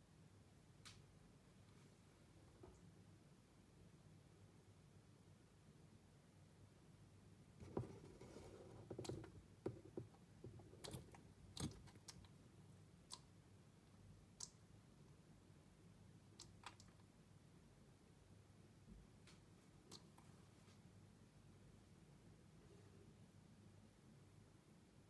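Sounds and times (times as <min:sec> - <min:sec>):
faint clicks and soft knocks: 0:07.6 - 0:12.4.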